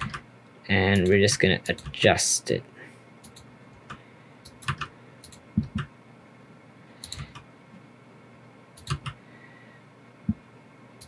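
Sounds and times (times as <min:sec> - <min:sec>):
keyboard and mouse clicks: 0:00.0 - 0:00.2, 0:03.2 - 0:05.9, 0:07.0 - 0:07.5, 0:08.8 - 0:09.2
soft low thumps: 0:05.6 - 0:05.8.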